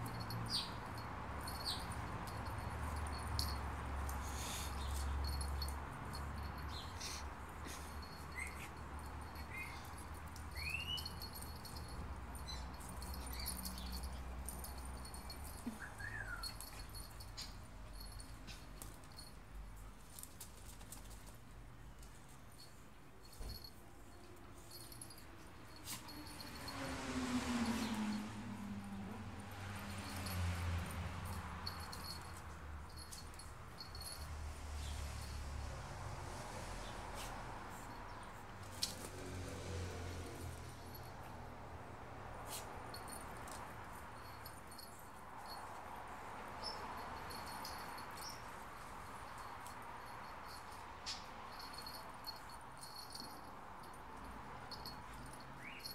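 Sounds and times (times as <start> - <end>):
dog whining: 15.6 - 16.9.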